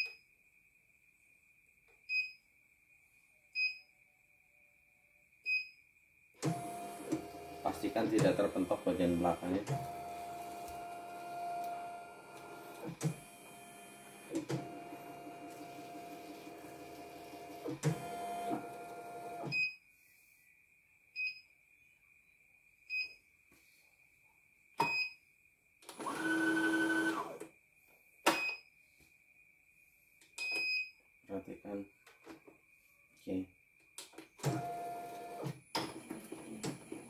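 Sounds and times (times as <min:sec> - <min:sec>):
embroidery machine motors humming: 0:06.5 - 0:19.4.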